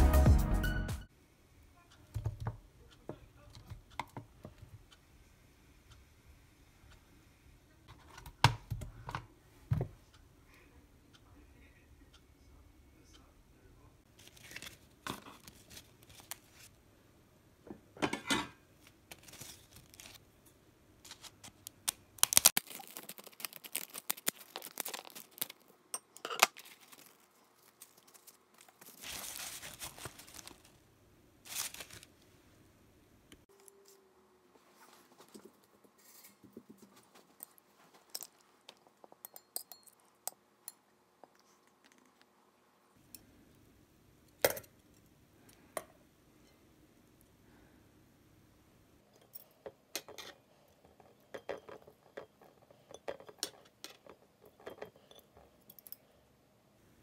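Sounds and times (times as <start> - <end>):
rice paper crackling: 14.1 - 16.7, 18.8 - 20.2, 21.0 - 25.7, 26.5 - 30.8, 31.4 - 32.3.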